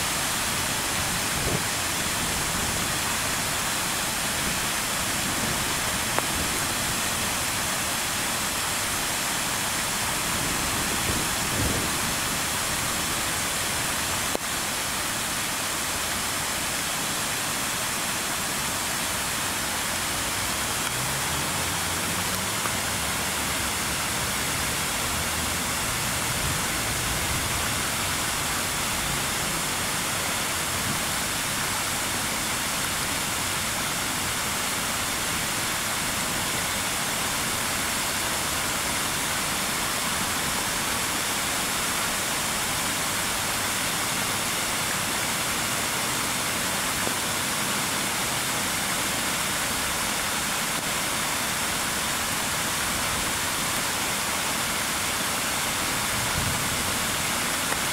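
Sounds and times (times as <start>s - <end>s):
fountain water splashing: 0.0s - 57.9s.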